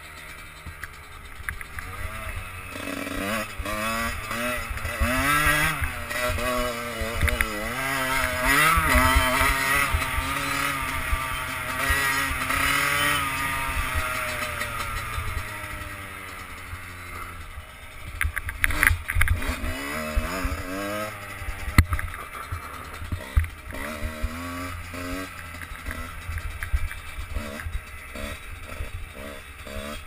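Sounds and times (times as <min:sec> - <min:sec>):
motorcycle engine revving: 0:00.0 - 0:30.0.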